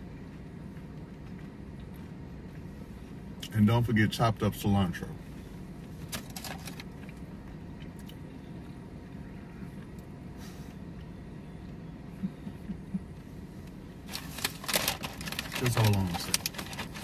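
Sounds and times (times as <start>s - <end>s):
car cabin hum: 0.0s - 17.0s
faint chewing: 0.1s - 3.2s
clicks and rustles: 6.0s - 7.2s, 14.1s - 17.0s.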